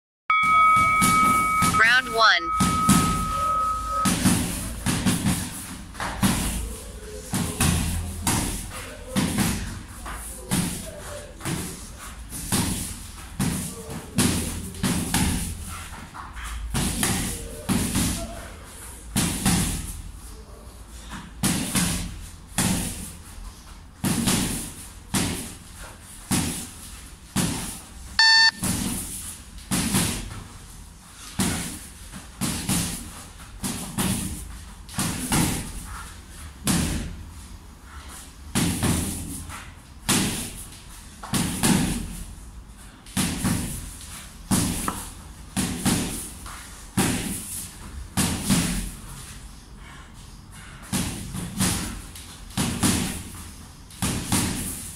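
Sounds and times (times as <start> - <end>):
loud pitched tone: 0.3 - 4.4, 28.2 - 28.6.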